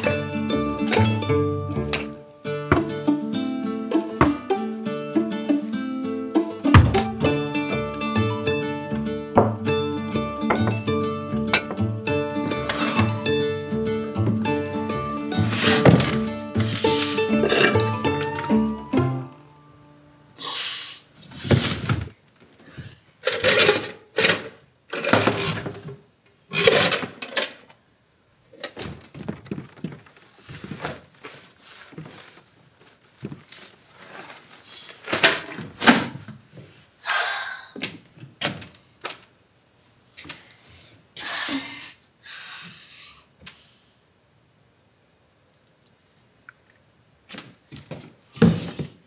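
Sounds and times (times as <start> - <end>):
objects rustling and knocking: 0.6 - 3.2, 4.2 - 4.5, 6.6 - 8.4, 9.3 - 18.5, 21.2 - 27.7, 28.6 - 36.8, 47.3 - 49.0.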